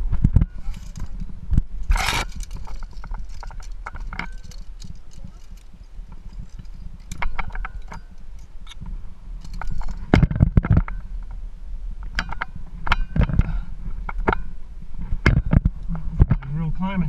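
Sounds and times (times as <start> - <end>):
steady low rumble: 0.0 - 17.0
metal carabiners clinking: 0.6 - 8.8, 9.4 - 10.2.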